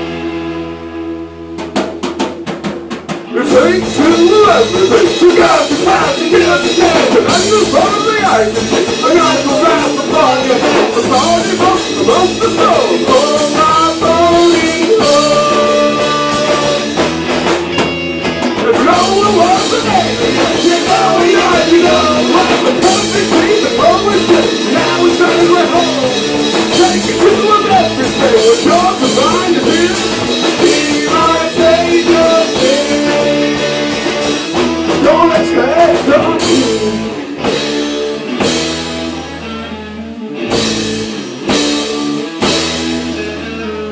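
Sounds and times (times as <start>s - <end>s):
drum kit: 0.0s - 43.9s
guitar: 0.0s - 43.9s
person singing: 3.3s - 17.1s, 18.6s - 37.7s.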